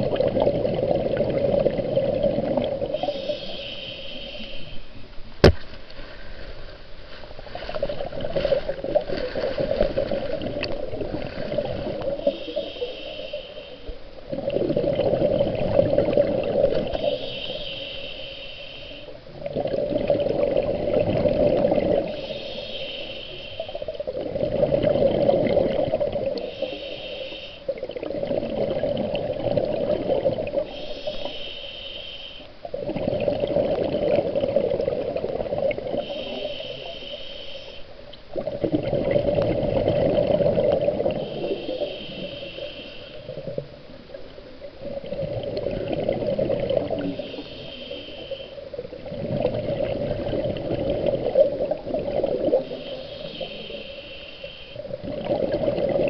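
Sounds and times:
exhaled bubbles rushing: 0.0s - 3.3s, 7.6s - 12.7s, 14.3s - 17.1s, 19.3s - 22.3s, 23.8s - 26.6s, 27.7s - 30.7s, 32.7s - 36.4s, 38.3s - 47.7s, 48.7s - 53.9s, 54.8s - 56.0s
diver breathing through regulator: 2.9s - 4.9s, 12.2s - 14.0s, 16.8s - 19.2s, 22.0s - 23.9s, 26.4s - 27.7s, 30.6s - 32.5s, 36.0s - 37.9s, 41.0s - 43.4s, 46.8s - 48.7s, 52.5s - 54.9s.

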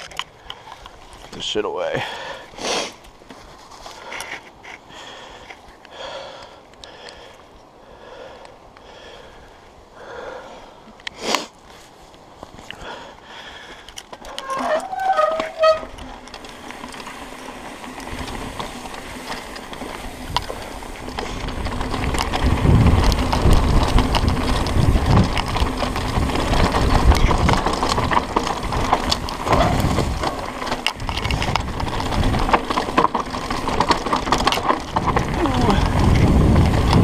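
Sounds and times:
bike rattles and clicks: 0.0s - 37.0s
tyres rumbling over dirt: 14.2s - 37.0s
wind on microphone: 20.1s - 32.6s, 34.9s - 37.0s.

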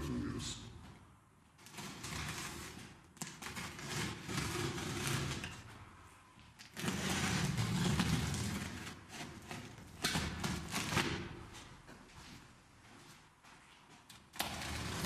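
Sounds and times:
knife cutting through tape: 1.6s - 5.6s, 6.6s - 11.3s.

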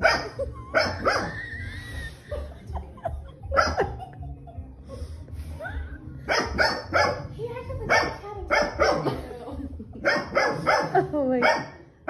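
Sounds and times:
person laughing: 0.2s - 5.1s.

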